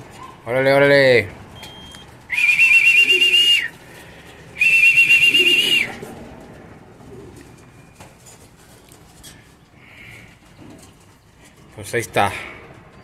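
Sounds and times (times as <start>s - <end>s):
trilling pea whistle blasts: 2.3s - 3.7s, 4.6s - 6.0s
faint pigeon cooing: 2.5s - 11.7s.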